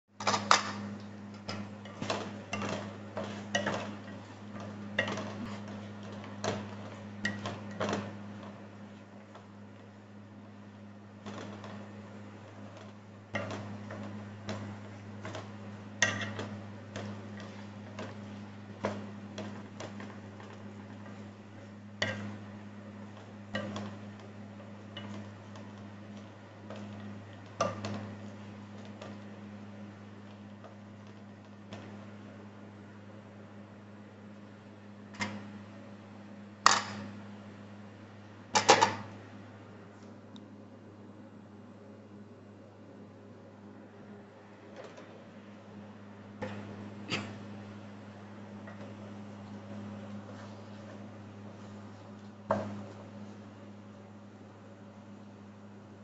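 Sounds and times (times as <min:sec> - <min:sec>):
steady low hum: 0:00.0 - 0:56.0
spatula stirring in frying pan: 0:00.8 - 0:09.7, 0:11.3 - 0:32.0
wooden spatula scraping pan: 0:01.5 - 0:08.4.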